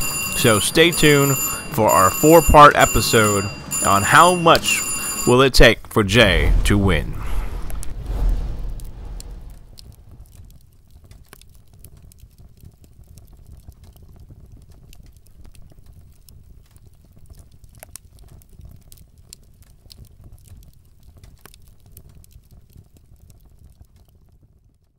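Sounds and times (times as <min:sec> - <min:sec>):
fire crackling and popping: 0:05.8 - 0:24.9
low rumble: 0:06.2 - 0:10.6.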